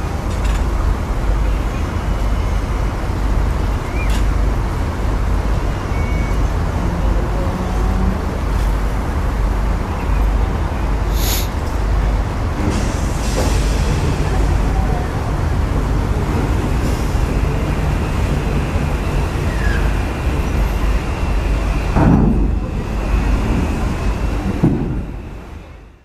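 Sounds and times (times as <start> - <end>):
ship engines rumbling: 0.0 - 26.0
short hiss: 11.1 - 11.6.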